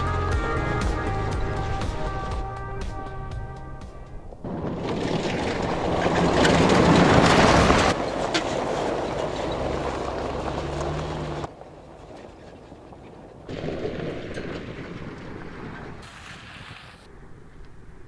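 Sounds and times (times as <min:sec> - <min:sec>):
tyres crunching over stones: 0:04.2 - 0:16.8
suv engine running: 0:09.0 - 0:13.5.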